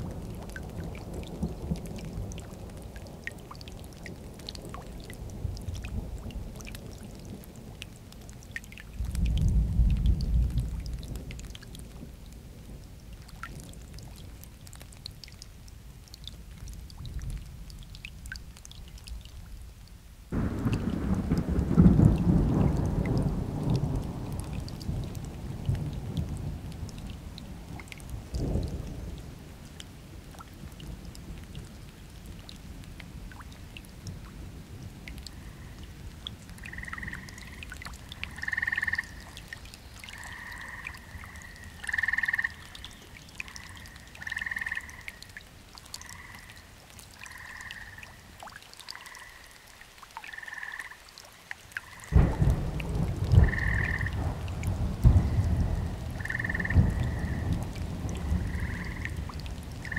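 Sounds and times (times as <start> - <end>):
steady rain: 0.0 - 59.9
thunder rumbling: 20.3 - 29.2, 52.1 - 59.9
frog calling: 36.6 - 45.4, 46.0 - 48.2, 48.9 - 51.0, 51.8 - 52.1, 53.4 - 54.2, 56.2 - 57.6, 58.4 - 59.2.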